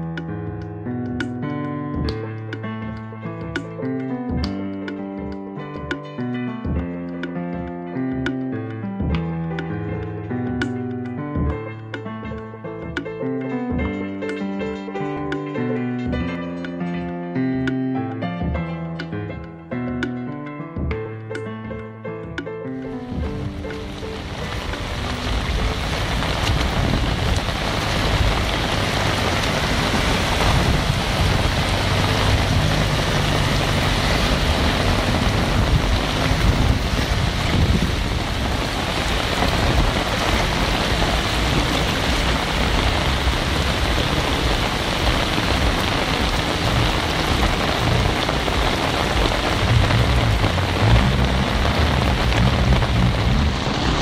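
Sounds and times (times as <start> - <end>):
cars driving through floodwater: 23.1 - 54.0
heavy rain pouring: 23.1 - 54.0
low rumble: 46.6 - 54.0.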